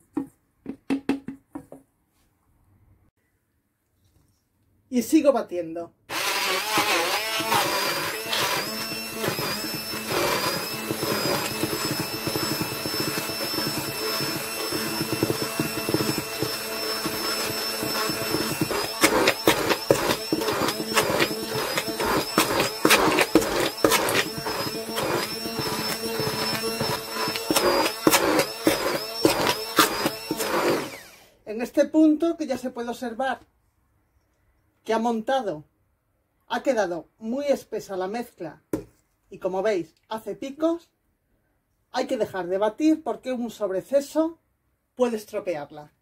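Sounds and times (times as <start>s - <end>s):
hand blender motor whine: 6.1s - 31.4s
clicks and knocks of thick mixture: 7.4s - 30.8s.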